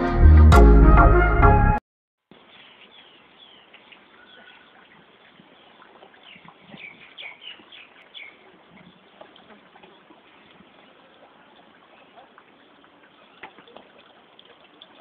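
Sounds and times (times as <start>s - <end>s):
music: 0.0s - 1.8s
faint outdoor background noise: 2.2s - 15.0s
small birds chirping: 2.3s - 14.0s.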